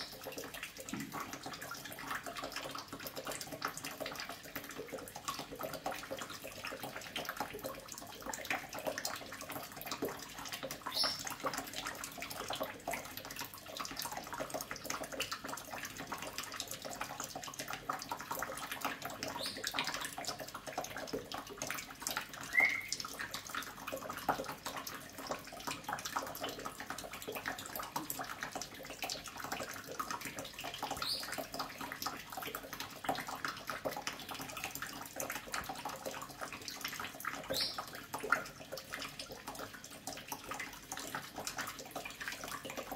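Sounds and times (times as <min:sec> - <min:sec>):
tap running into a sink: 0:00.0 - 0:06.1.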